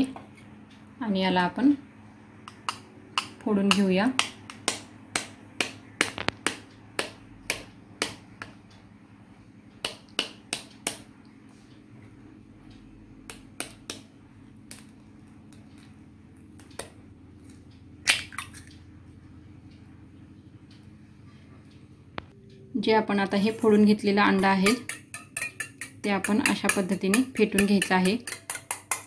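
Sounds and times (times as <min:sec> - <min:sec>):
knife tapping eggshell: 0:02.4 - 0:08.6, 0:13.3 - 0:14.1, 0:24.4 - 0:29.0.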